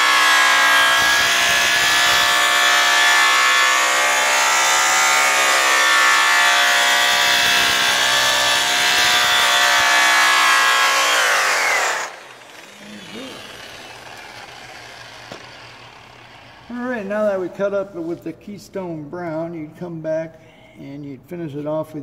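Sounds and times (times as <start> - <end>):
electric buffer whining: 0.0 - 17.0.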